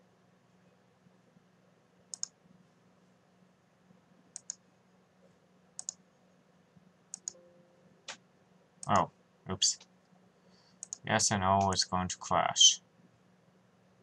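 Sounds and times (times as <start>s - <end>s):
faint low hum: 0.0s - 14.0s
computer mouse button clicks: 2.1s - 2.3s, 5.8s - 6.0s, 7.1s - 7.4s.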